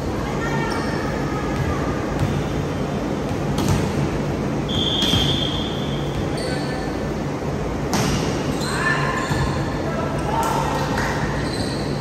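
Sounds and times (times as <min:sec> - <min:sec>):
gym hall hum: 0:00.0 - 0:12.0
referee whistle: 0:04.7 - 0:06.1.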